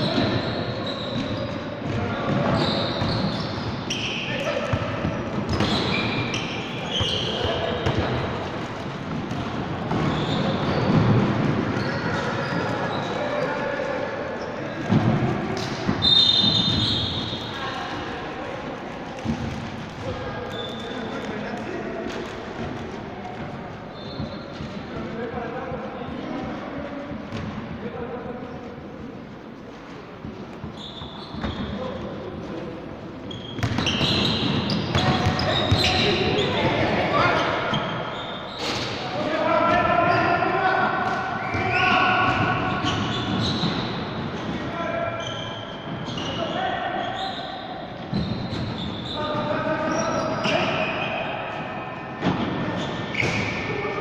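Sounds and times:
sneakers squeaking: 0.0 - 27.7, 28.3 - 54.0
basketball bouncing on wooden floor: 33.6 - 36.0.

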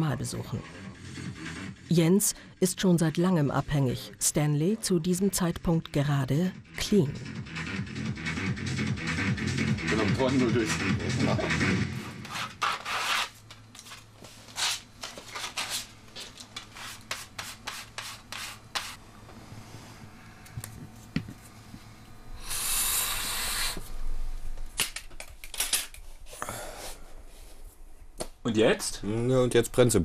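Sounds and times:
loud sniff: 22.4 - 23.9.

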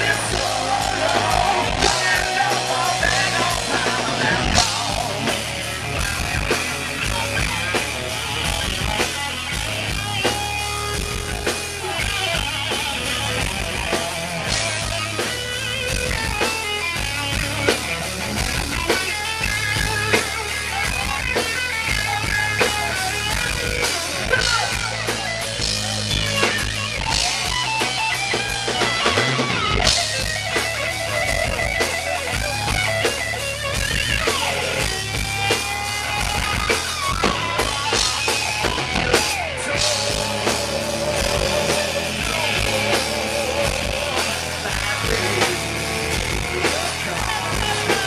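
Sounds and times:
person singing: 0.0 - 5.6, 39.4 - 48.0
distorted electric guitar: 0.0 - 48.0
drum kit: 0.0 - 48.0.

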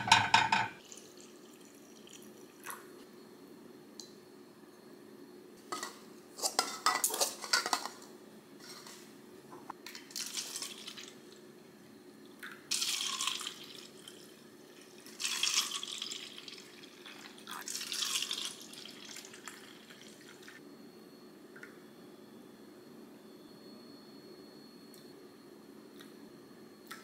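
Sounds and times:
liquid pouring into plastic cups: 0.8 - 2.8, 9.9 - 11.2, 12.4 - 20.5.

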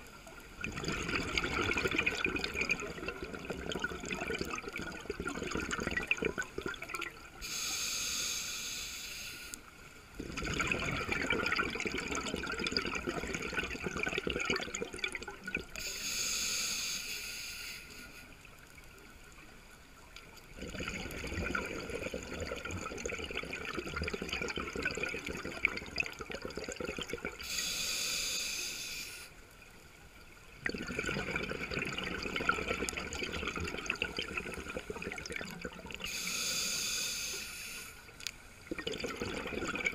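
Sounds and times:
bubbling exhale underwater: 0.6 - 7.3, 10.2 - 15.8, 20.6 - 27.6, 30.6 - 36.6, 38.7 - 39.9
hissing regulator inhale: 7.4 - 9.7, 15.8 - 18.4, 27.4 - 29.4, 36.0 - 38.1.

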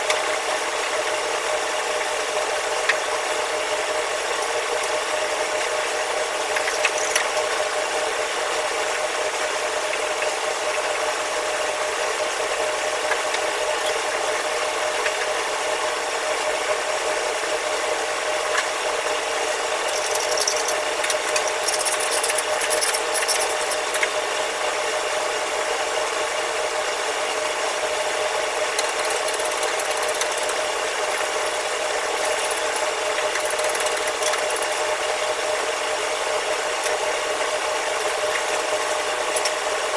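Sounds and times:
machine drone: 17.8 - 25.1, 27.4 - 39.9
scrubbing and scraping on metal: 19.9 - 24.1, 28.8 - 35.0.

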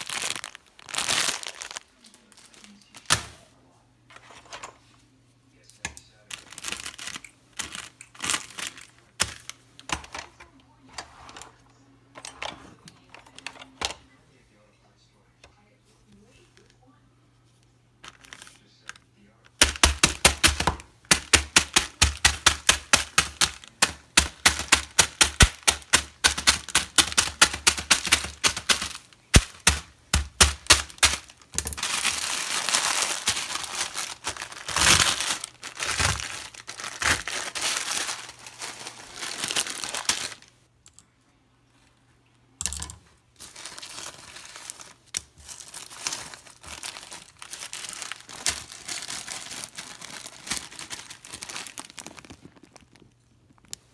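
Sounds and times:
plastic packet crinkling: 0.0 - 3.2, 6.2 - 10.0, 18.0 - 40.6, 43.4 - 53.9
sharp hits on plastic packet: 19.6 - 38.1.

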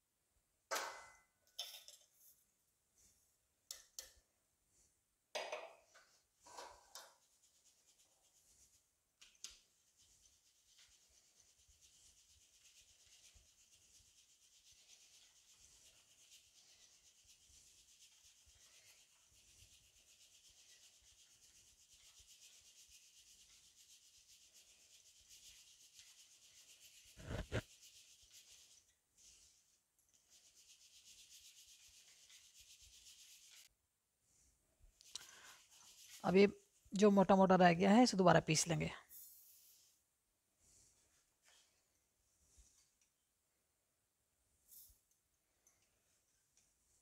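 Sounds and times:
flour rubbed through sieve: 7.2 - 33.7, 35.1 - 36.9.

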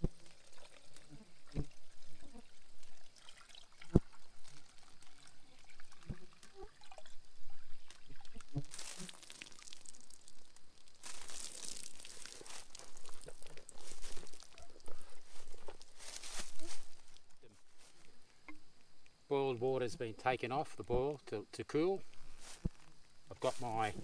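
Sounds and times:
water pouring into cloth bag: 0.0 - 16.8.

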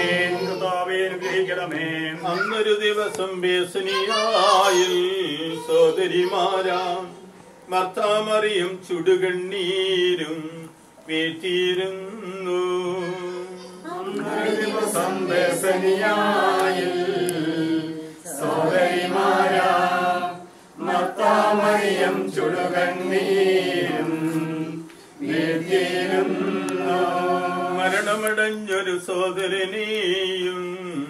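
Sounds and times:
group singing a slow hymn: 0.0 - 2.5, 9.0 - 31.0.

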